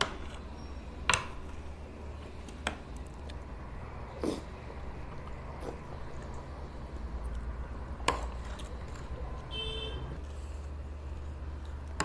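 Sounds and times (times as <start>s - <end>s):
soft mouth sounds: 4.1s - 4.6s, 5.5s - 6.0s.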